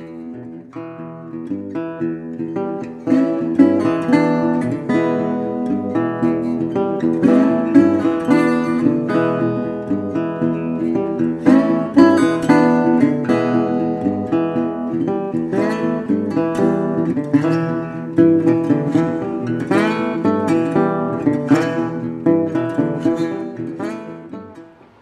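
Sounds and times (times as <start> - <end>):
acoustic guitar music: 0.0 - 25.0.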